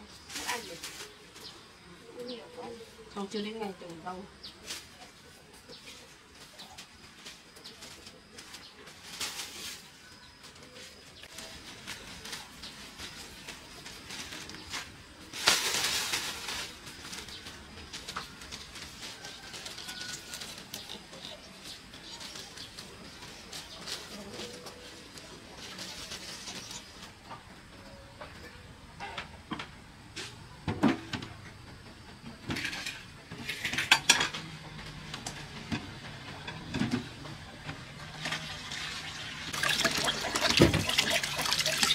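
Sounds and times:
dishes and utensils clattering: 0:32.5 - 0:34.4.

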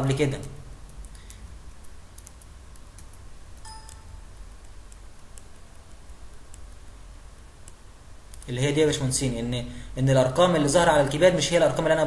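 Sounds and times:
faint clicks and ticks: 0:00.4 - 0:08.5
low hum: 0:03.6 - 0:07.8
brief high tone: 0:03.7 - 0:04.2.

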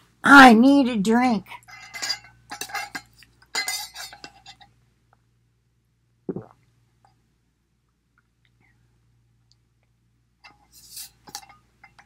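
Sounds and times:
person swallowing: 0:06.3 - 0:06.7.

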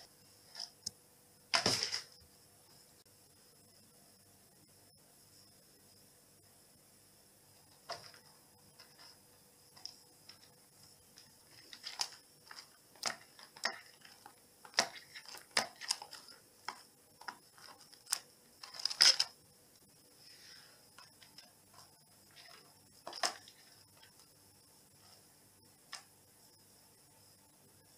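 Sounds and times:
cat claws scratching rug: 0:11.2 - 0:19.3.

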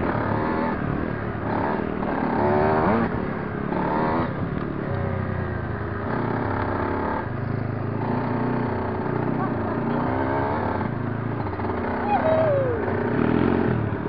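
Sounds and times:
dirt bike engine revving: 0:00.0 - 0:04.3, 0:08.0 - 0:14.0.

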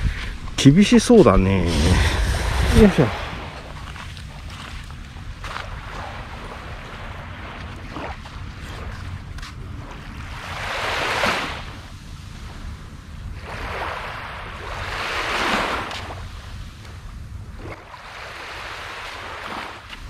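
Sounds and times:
low steady rumble: 0:00.0 - 0:10.9, 0:11.6 - 0:13.5, 0:16.0 - 0:17.6
small waves washing onto shore: 0:00.8 - 0:12.7, 0:13.3 - 0:16.9, 0:17.5 - 0:20.0.

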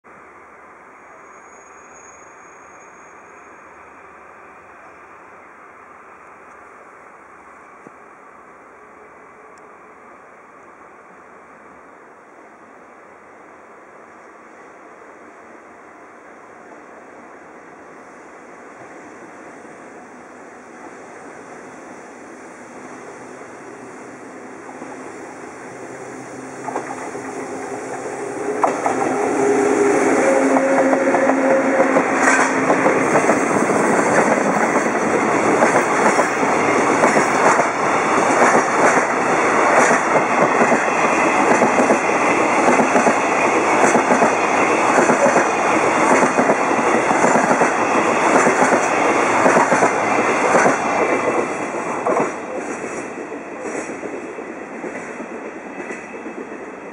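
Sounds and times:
electric locomotive humming: 0:00.1 - 0:56.9
train wheels clacking over rail joints: 0:26.6 - 0:29.3, 0:30.3 - 0:56.7.

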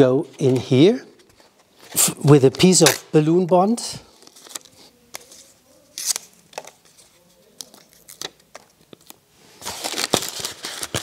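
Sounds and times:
balloons rustling and crinkling: 0:00.3 - 0:11.0.

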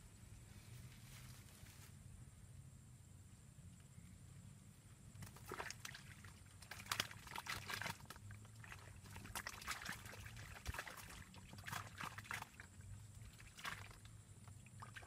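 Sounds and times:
faint low hum: 0:00.0 - 0:15.0
small splashes on pond: 0:05.2 - 0:15.0.

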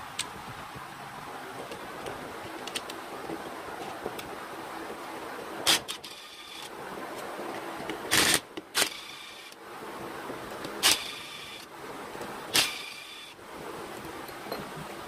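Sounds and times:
cordless power driver bursts: 0:08.1 - 0:09.6, 0:10.8 - 0:11.6, 0:12.5 - 0:13.4.

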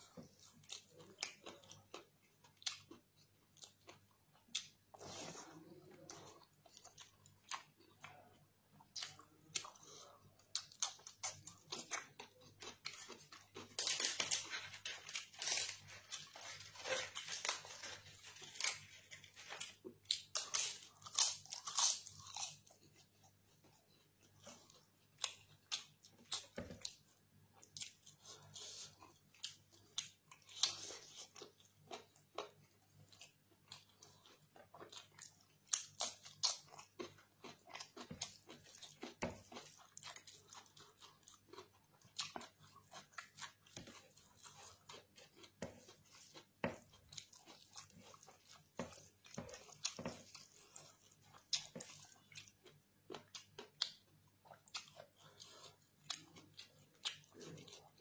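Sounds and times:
wet chewing and mouth smacks: 0:18.3 - 0:58.0.

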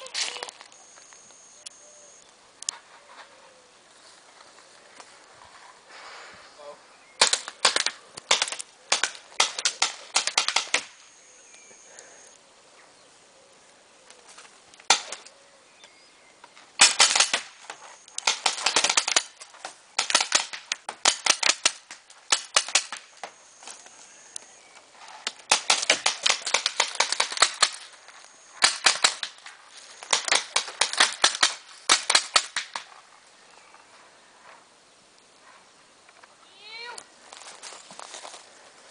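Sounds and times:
paintball markers firing: 0:07.2 - 0:11.0, 0:16.8 - 0:23.4, 0:25.3 - 0:27.9, 0:28.6 - 0:32.9.

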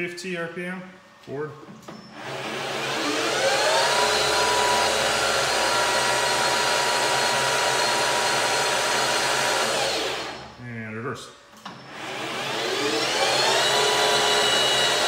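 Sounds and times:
steady whining tones: 0:00.0 - 0:15.0
lathe spindle running: 0:02.2 - 0:10.5, 0:12.0 - 0:15.0.

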